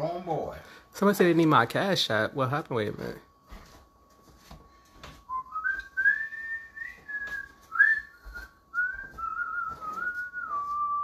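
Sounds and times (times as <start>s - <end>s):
person whistling a tune: 5.3s - 11.0s.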